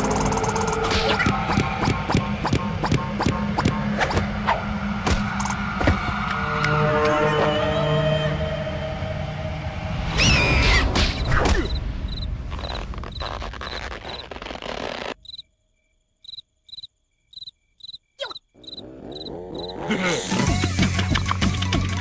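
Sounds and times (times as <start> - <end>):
cartoon cricket chirps: 11.2 - 14.3, 15.1 - 19.8.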